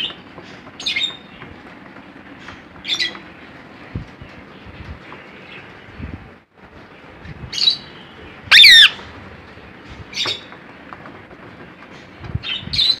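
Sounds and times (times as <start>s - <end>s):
cockatiel chirps: 8.5s - 9.0s
cockatiel wavering screech: 8.5s - 9.0s.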